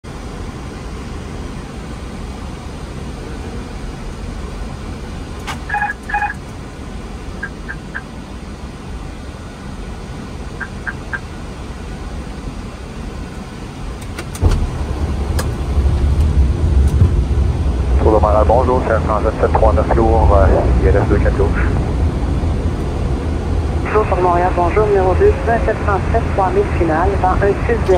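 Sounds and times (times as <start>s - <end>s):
aircraft cockpit rumble: 0.0s - 27.9s
short electronic beeps: 5.7s - 6.4s, 7.4s - 8.1s, 10.6s - 11.2s.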